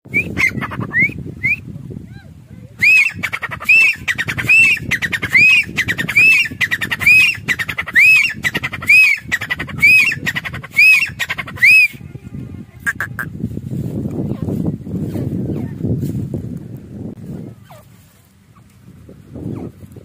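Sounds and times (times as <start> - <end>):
francolin calling: 2.8 - 11.9.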